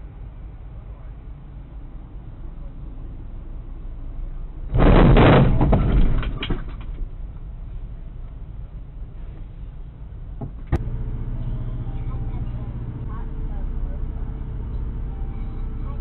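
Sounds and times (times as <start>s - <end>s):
diesel engines idling: 0.0s - 4.7s, 5.8s - 16.0s
loud crunching impact: 4.7s - 7.1s
metal scraping and crackling: 4.7s - 7.1s.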